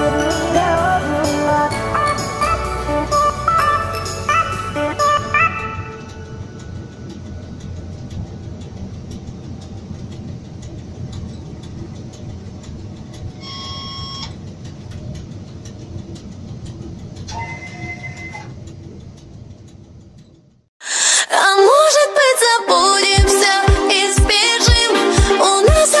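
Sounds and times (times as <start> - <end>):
wheels clicking: 0.0 - 20.7
electric train rumbling on track: 0.0 - 26.0
brief tones: 13.4 - 14.4, 17.3 - 18.6.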